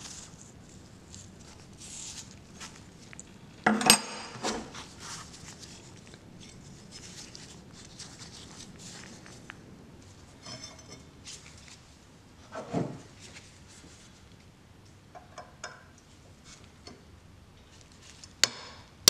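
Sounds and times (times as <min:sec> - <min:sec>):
gloved hands rubbing and clicking: 0:00.0 - 0:03.3, 0:04.8 - 0:09.6.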